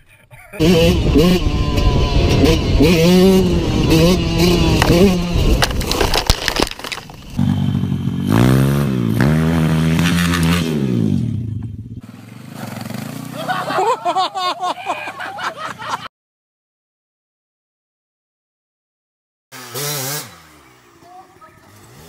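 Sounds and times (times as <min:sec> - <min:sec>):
dirt bike engine revving: 0:00.6 - 0:05.9, 0:07.1 - 0:13.8, 0:19.5 - 0:22.0
bike crashing into brush: 0:04.7 - 0:07.4.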